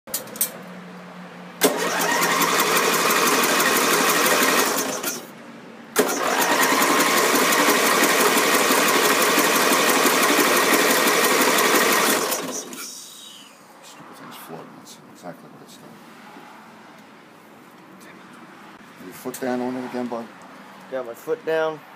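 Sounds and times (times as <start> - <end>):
electric starter cranking engine: 1.6 - 5.3, 6.0 - 12.9.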